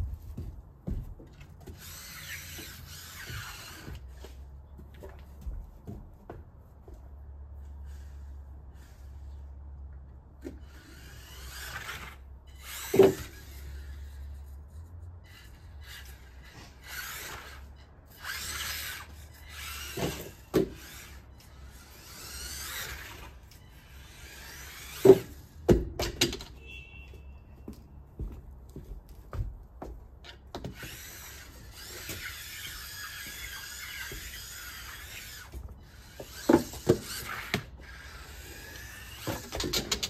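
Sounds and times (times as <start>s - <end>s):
toy car electric motor whining: 1.7s - 4.4s, 10.6s - 14.5s, 15.2s - 25.6s, 30.7s - 40.0s.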